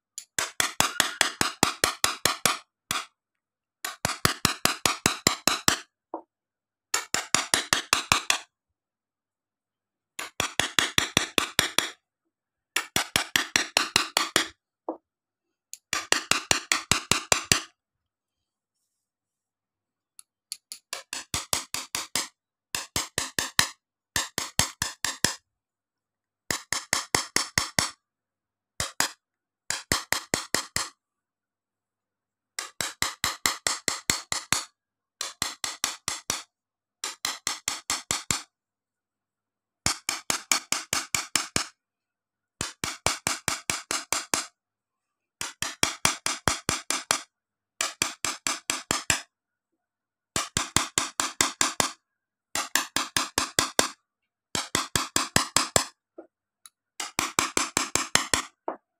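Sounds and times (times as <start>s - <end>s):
engraving tool tapping glass: 0.2s - 3.1s.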